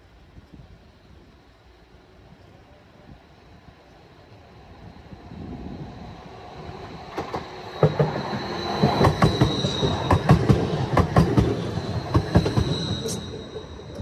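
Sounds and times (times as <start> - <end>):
tram passing: 0.0 - 14.0
high-pitched whine: 4.1 - 14.0
wheels clacking over rail joints: 7.0 - 13.1.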